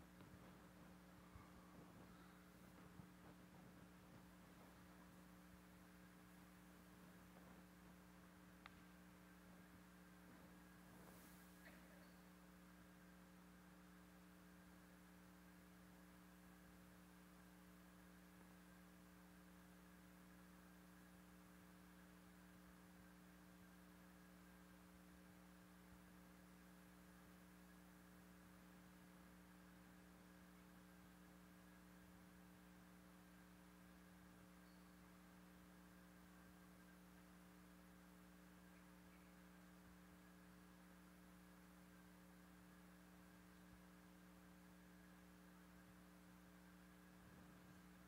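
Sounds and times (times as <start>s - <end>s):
faint electrical hum: 0.0s - 48.0s.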